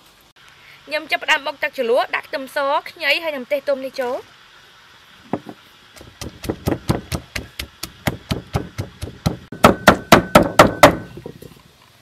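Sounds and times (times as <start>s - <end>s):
pestle pounding in wooden mortar: 5.3s - 11.4s.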